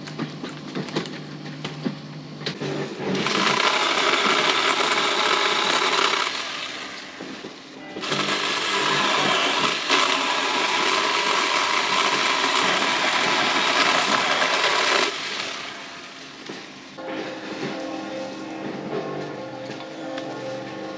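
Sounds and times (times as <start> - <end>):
saw cutting branches: 2.7 - 6.8, 8.0 - 15.8.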